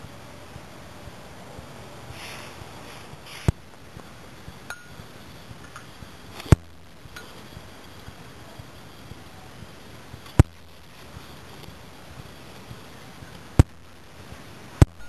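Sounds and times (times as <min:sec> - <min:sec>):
low steady hiss: 0:00.0 - 0:15.0
faint glassy ping: 0:04.7 - 0:05.0.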